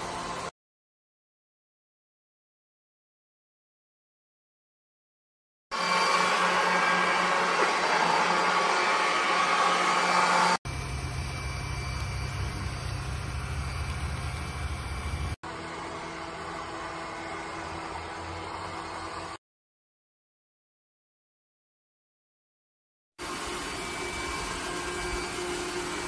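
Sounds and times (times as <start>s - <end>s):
robot vacuum whirring: 5.8s - 19.4s, 23.2s - 26.0s.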